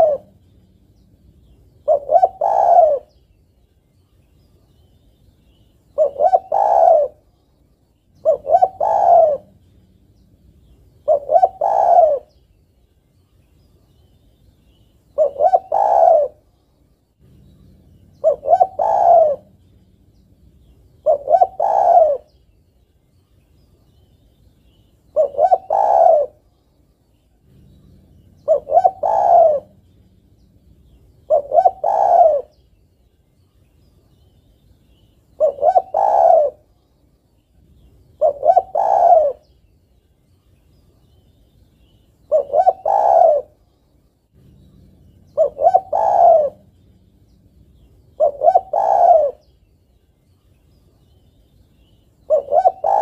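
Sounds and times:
dove cooing: 0.0s - 3.2s, 5.9s - 7.4s, 8.2s - 12.4s, 15.1s - 16.5s, 17.2s - 22.4s, 25.1s - 26.5s, 27.4s - 32.7s, 34.9s - 36.7s, 37.8s - 39.6s, 42.2s - 43.6s, 44.4s - 49.6s, 52.2s - 53.0s.

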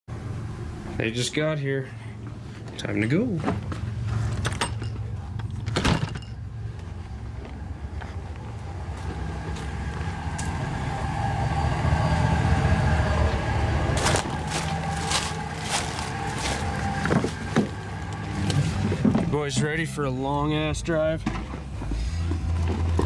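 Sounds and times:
truck engine idling: 6.4s - 23.0s.

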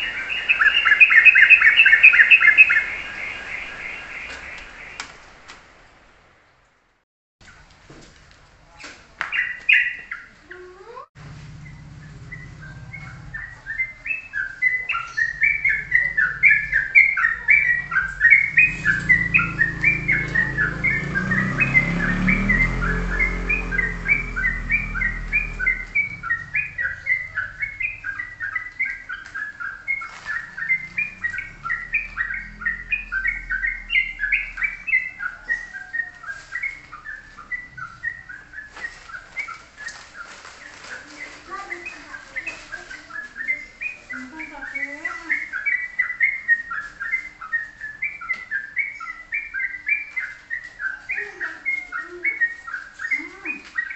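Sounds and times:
songbird rapid chirping: 0.0s - 6.0s, 8.6s - 53.9s
low rumble: 11.2s - 29.0s, 29.9s - 35.9s.

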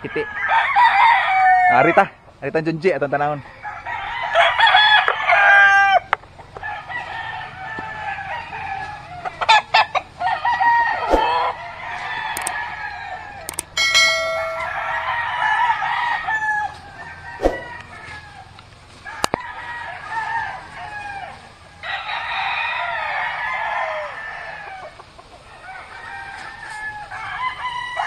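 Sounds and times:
roosters crowing: 0.0s - 28.0s
hens clucking: 3.0s - 13.8s, 16.7s - 18.6s, 23.8s - 27.3s.

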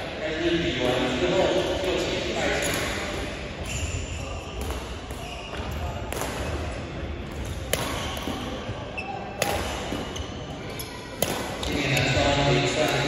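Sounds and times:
people talking: 0.0s - 3.0s, 10.6s - 13.0s
badminton racket hitting shuttlecock: 7.4s - 8.5s, 9.4s - 10.2s, 11.2s - 11.7s.

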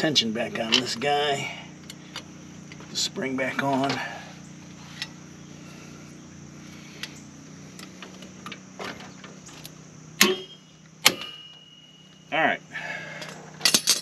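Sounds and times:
small metallic clicks and scrapes: 4.7s - 5.2s
sharp metallic snaps of spring: 10.2s - 11.8s.

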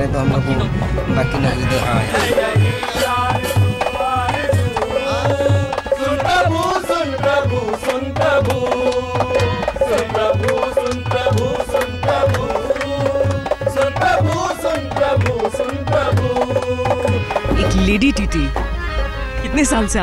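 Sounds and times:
dholak drum rhythm: 0.0s - 18.9s
harmonium melody: 0.0s - 20.0s.

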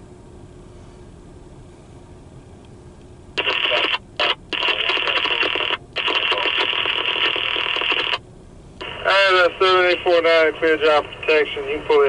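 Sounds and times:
crackly radio voice: 3.4s - 8.2s, 8.8s - 12.0s.

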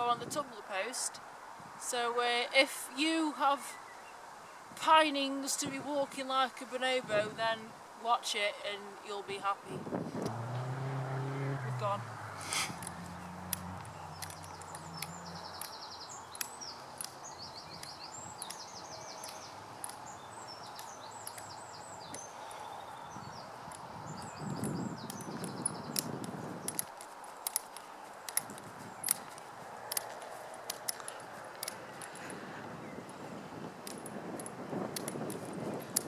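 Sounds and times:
metal crutches clicking on grass: 10.2s - 36.0s
songbirds trilling: 10.5s - 36.0s.

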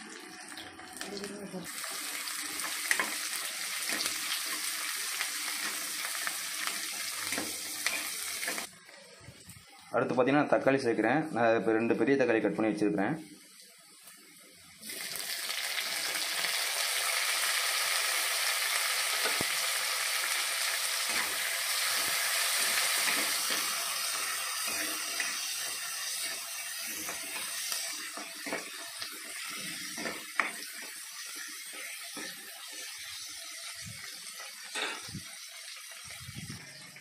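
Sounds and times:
food sizzling in hot oil: 0.0s - 9.9s, 13.2s - 37.0s
spatula scraping a pan: 21.0s - 33.0s.

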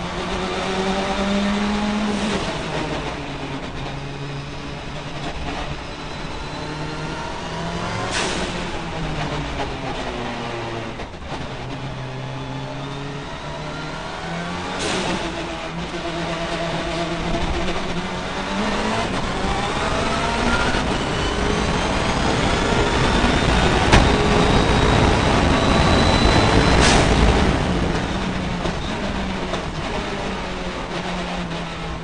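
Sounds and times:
race car engine accelerating: 0.0s - 32.0s
sharp crack: 20.2s - 29.7s.

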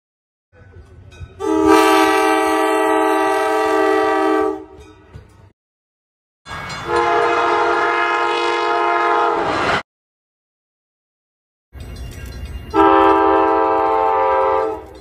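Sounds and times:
train air horn chord: 1.4s - 4.8s, 6.9s - 9.6s, 12.7s - 15.0s
train rumbling past: 6.5s - 9.8s, 11.8s - 15.0s.

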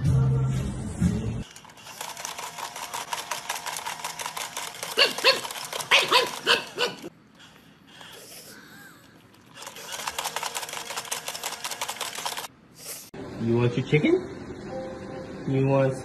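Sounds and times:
fast clicking: 1.5s - 7.1s, 9.4s - 12.5s
dog whining: 4.9s - 7.1s.

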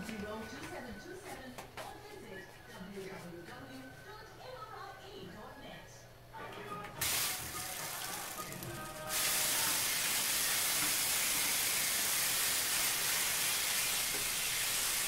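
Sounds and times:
faucet running: 7.0s - 15.0s.

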